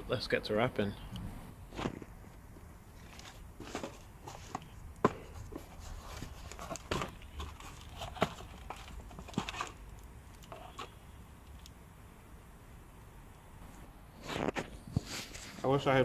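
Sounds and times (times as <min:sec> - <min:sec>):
cardboard flaps rustling and scraping: 0:01.7 - 0:09.8, 0:14.2 - 0:16.0
plastic crinkling: 0:02.9 - 0:11.0.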